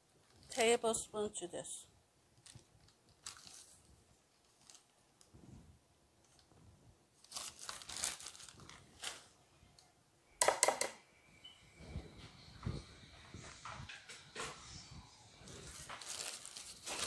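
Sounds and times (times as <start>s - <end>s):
plastic bag crinkling: 0.3s - 1.0s, 2.4s - 5.3s, 7.2s - 9.4s, 15.5s - 17.0s.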